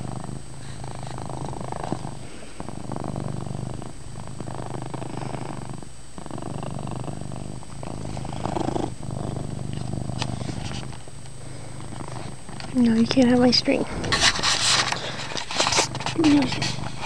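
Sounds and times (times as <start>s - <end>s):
cat purring loudly: 0.0s - 17.0s.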